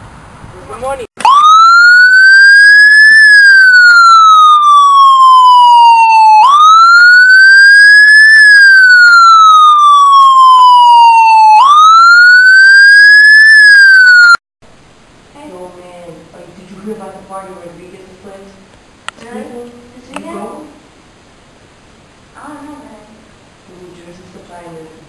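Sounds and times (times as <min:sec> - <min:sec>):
siren wailing: 0:01.2 - 0:14.4.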